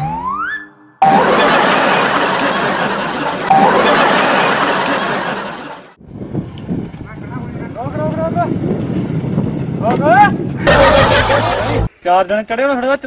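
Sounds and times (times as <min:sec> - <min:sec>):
canned crowd laughter: 0:01.0 - 0:06.0, 0:10.6 - 0:11.9.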